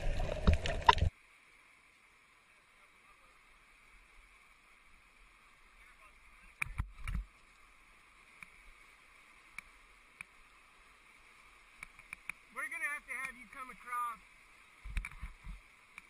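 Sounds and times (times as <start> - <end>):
whitewater rapids rushing: 12.5 - 14.6.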